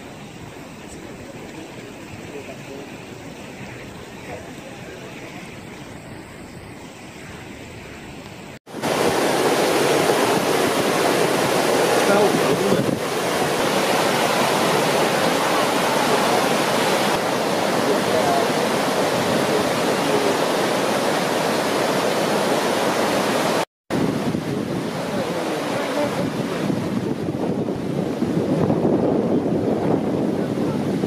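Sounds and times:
floodwater rushing: 0.0s - 31.0s.

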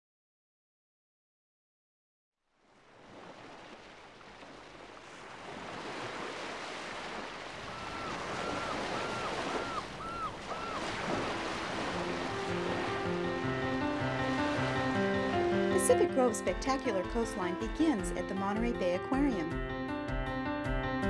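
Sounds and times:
ocean waves breaking: 2.6s - 18.9s
gull calling: 7.6s - 13.2s.

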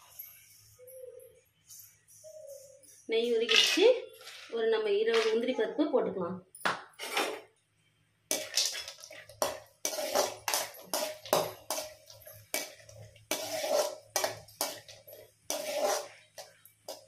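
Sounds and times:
metal ladle scraping a pan: 3.5s - 4.5s, 8.3s - 17.0s.

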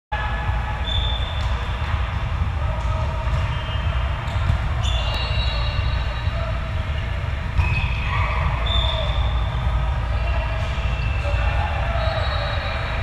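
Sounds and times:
low rumble in hall: 0.2s - 13.0s
volleyball strike: 0.5s - 5.4s
shoes squeaking on court floor: 3.3s - 6.2s, 7.6s - 9.4s.

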